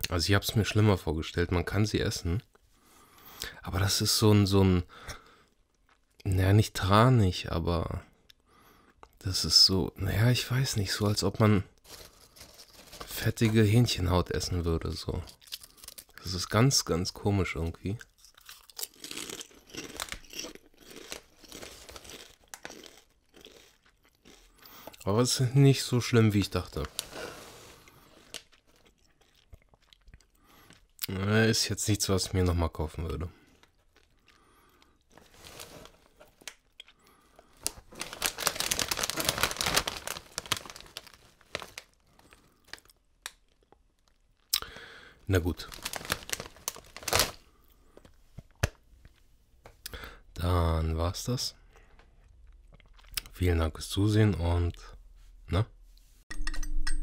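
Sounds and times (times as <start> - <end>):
crisp bag crinkling: 10.9 - 14.0, 18.4 - 23.8, 26.3 - 30.0, 35.1 - 36.7, 37.4 - 43.0, 45.3 - 47.6
person chewing potato chips: 11.8 - 13.2, 15.2 - 16.3, 18.0 - 25.3, 26.5 - 31.1, 33.4 - 44.9, 45.5 - 48.6, 51.7 - 53.3.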